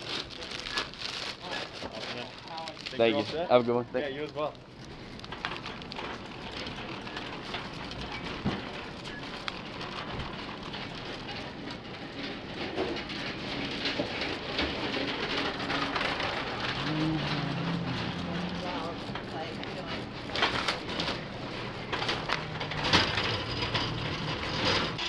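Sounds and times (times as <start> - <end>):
plastic bags crinkling: 0.0 - 11.8
shopping cart rattling: 5.3 - 25.0.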